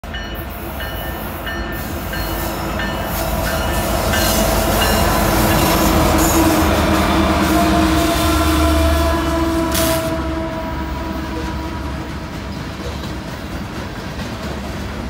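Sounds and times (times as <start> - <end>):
diesel locomotive engines: 0.0 - 15.0
rumble of wheels on rail: 0.0 - 15.0.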